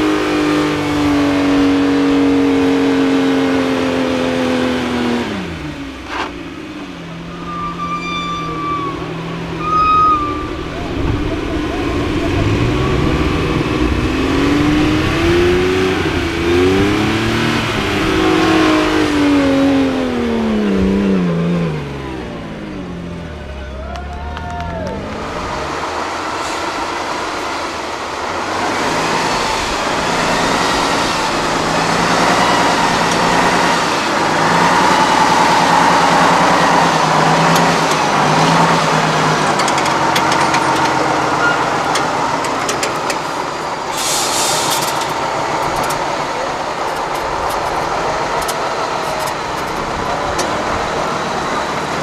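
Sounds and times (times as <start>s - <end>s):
diesel truck engine under load: 0.0s - 52.0s
short hiss: 43.9s - 45.0s.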